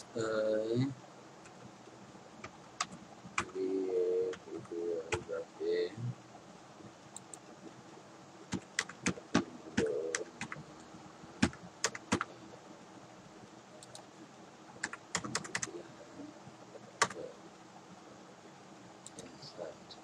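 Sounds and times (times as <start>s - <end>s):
keyboard typing clicks: 8.5s - 10.6s, 11.4s - 12.3s, 13.8s - 14.1s, 14.8s - 15.7s, 17.0s - 17.2s.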